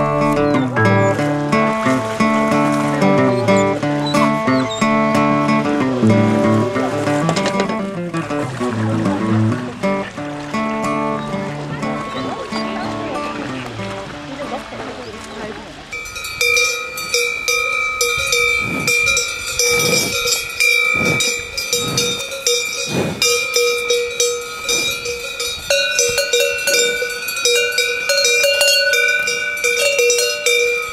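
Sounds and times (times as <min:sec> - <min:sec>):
cow bell clanking: 0:15.9 - 0:30.9.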